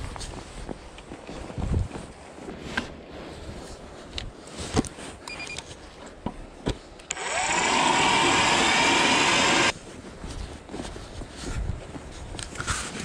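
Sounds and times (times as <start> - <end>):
electric ice auger drilling: 7.1 - 9.7.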